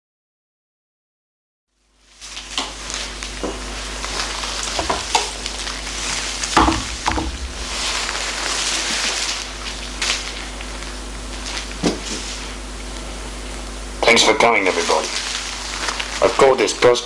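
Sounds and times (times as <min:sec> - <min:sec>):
steady hiss: 0:02.0 - 0:17.0
low hum: 0:04.8 - 0:11.7
knocks and rustles: 0:06.5 - 0:09.2.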